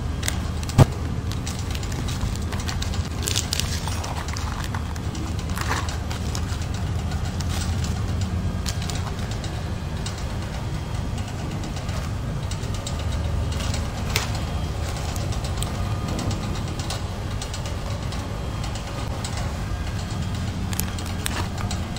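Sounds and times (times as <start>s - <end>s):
machinery humming: 0.0s - 21.9s
foil sachets crackling: 0.2s - 7.9s, 20.6s - 21.9s.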